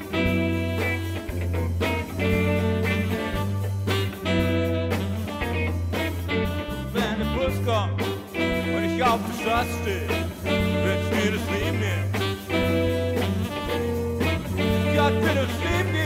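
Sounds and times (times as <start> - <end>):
upbeat swing music: 0.0 - 16.0.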